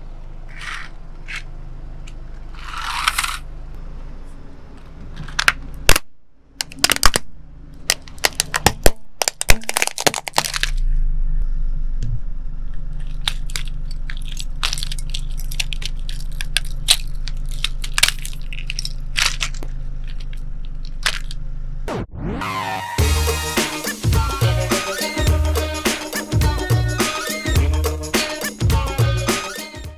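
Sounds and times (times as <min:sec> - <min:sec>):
plastic toy car cracking: 0:02.6 - 0:03.4, 0:05.2 - 0:10.8, 0:13.0 - 0:21.4
low hum: 0:10.3 - 0:24.7.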